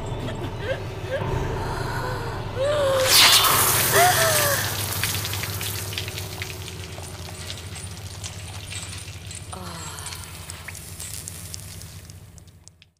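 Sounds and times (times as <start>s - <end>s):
low steady hum: 0.0s - 12.9s
liquid dripping and spattering: 3.0s - 12.9s.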